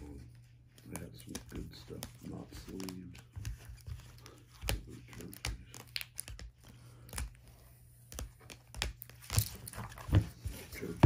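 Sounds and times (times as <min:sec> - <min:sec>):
cards tapping and clicking: 0:00.1 - 0:11.0
plastic crinkling: 0:00.8 - 0:07.4.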